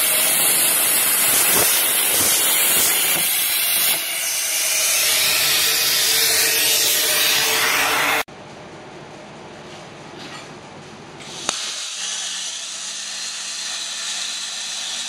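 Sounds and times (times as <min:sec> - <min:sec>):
hiss: 0:00.0 - 0:08.2, 0:11.2 - 0:15.0
plasma torch cutting steel: 0:00.0 - 0:08.3, 0:11.2 - 0:15.0.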